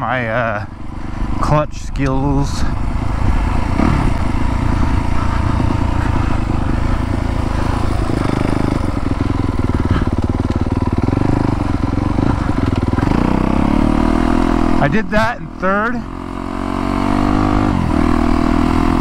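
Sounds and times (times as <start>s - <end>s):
dirt bike engine under load: 0.6s - 15.2s.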